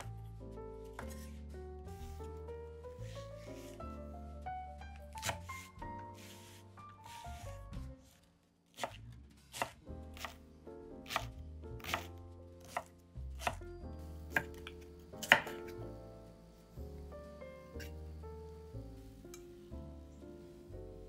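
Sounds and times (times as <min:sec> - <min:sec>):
soft background music: 0:00.0 - 0:21.0
knife chopping on cutting board: 0:01.0 - 0:01.3, 0:05.1 - 0:07.2, 0:08.7 - 0:10.4, 0:11.0 - 0:13.6, 0:14.3 - 0:15.6.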